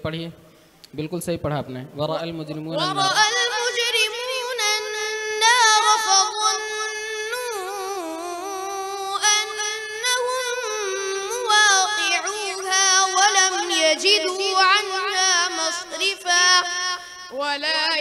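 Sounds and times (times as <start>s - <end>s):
breaths: 0.4s - 0.9s
boy chanting melodically: 2.5s - 18.0s.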